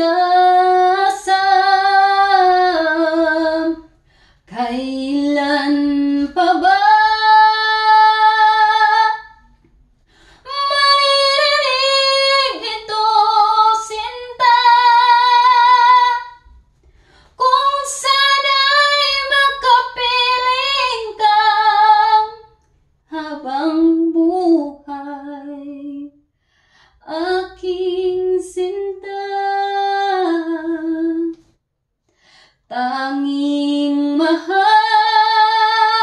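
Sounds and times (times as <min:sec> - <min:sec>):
woman singing unaccompanied: 0:04.5 - 0:09.4, 0:10.4 - 0:16.4, 0:17.4 - 0:22.5, 0:32.7 - 0:36.0.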